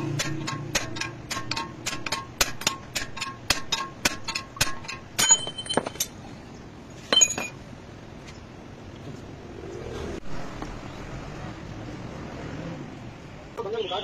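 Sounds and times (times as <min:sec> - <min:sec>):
hammer tapping steel drift: 0:00.0 - 0:06.1
loose steel parts clinking: 0:00.0 - 0:06.2, 0:07.0 - 0:07.6.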